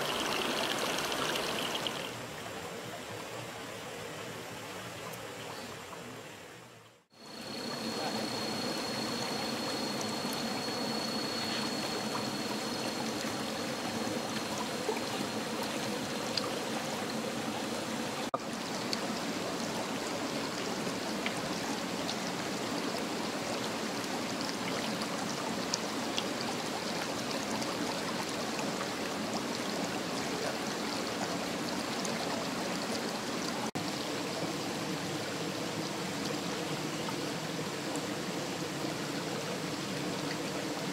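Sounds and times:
stream water rushing: 0.0 - 6.2, 7.2 - 40.9
faint thin high tone: 7.2 - 13.5.

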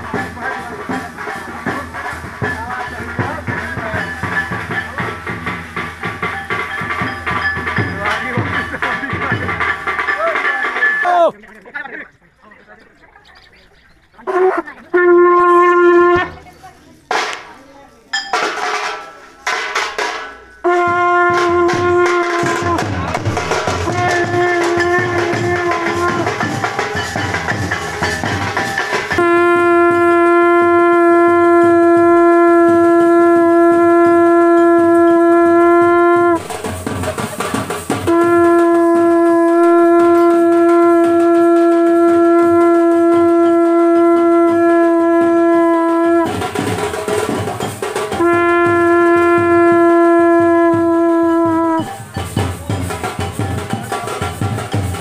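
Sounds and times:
conch shell blown: 14.3 - 16.4, 20.6 - 27.5, 29.1 - 36.7, 38.0 - 47.3, 48.1 - 51.9.

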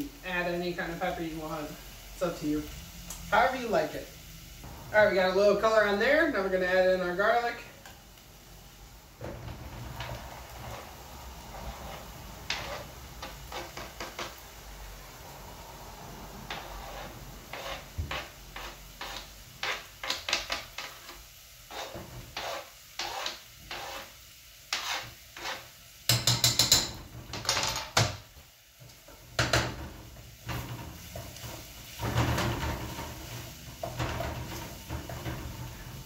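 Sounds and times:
wooden spoon scraping a pan: 9.1 - 28.1, 28.8 - 36.0.

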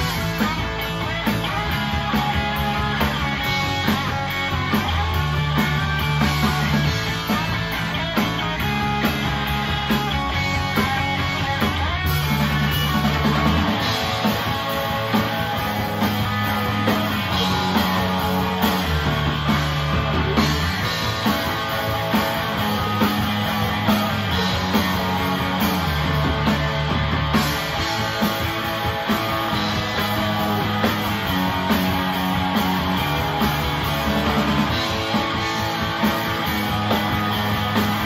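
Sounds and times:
bass guitar: 0.0 - 38.0
drum kit beat: 0.0 - 38.0
electric guitar: 0.0 - 38.0.

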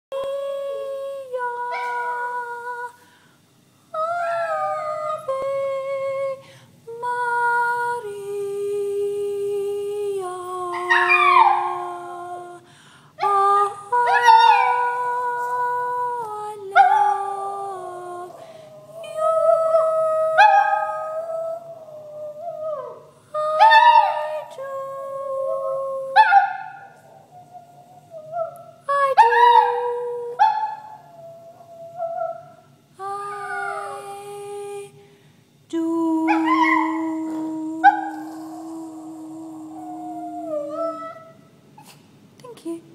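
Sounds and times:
dog howling: 4.0 - 5.5, 10.7 - 12.5, 14.0 - 15.5, 16.8 - 24.6, 25.4 - 32.6, 33.2 - 34.2, 36.3 - 41.4.

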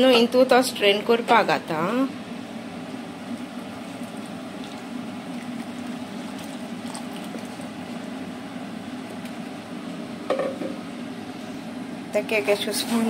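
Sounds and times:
steady low hum: 0.0 - 13.0
juice pouring and splashing: 3.0 - 10.0.

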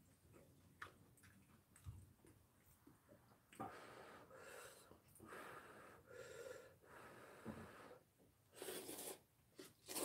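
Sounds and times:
person slurping noodles: 8.5 - 10.0.

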